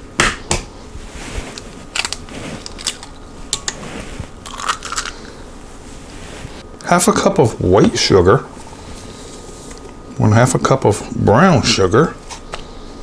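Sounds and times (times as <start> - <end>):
eggshell crackling: 1.6 - 5.5.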